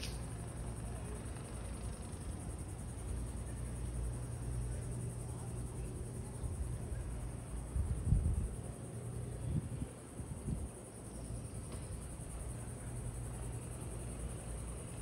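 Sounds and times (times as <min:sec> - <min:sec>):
thin high hiss: 0:00.0 - 0:00.3
low steady rumble: 0:00.0 - 0:15.0.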